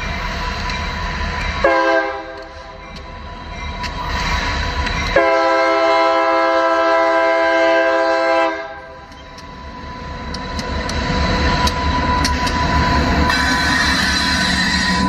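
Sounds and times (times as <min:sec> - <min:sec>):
locomotive and wheels rumbling: 0:00.0 - 0:15.0
train air horn blast: 0:01.6 - 0:02.4, 0:05.2 - 0:08.8
clicks: 0:10.2 - 0:13.4.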